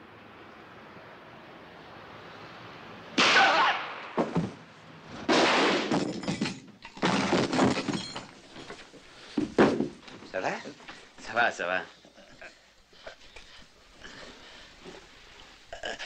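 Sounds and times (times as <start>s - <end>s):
crashes and knocks: 4.1s - 4.6s, 5.2s - 10.2s
glass shattering: 5.3s - 8.8s.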